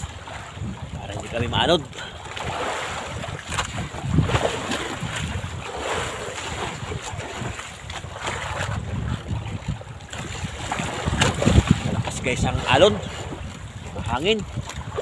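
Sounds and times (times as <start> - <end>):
waves sloshing against boat: 0.0 - 15.0
wind buffeting microphone: 0.0 - 15.0.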